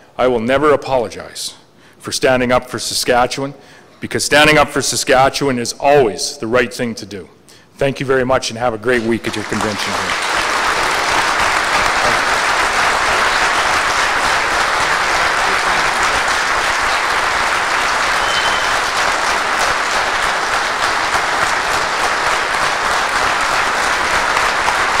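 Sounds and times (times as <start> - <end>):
audience applauding: 9.0 - 25.0.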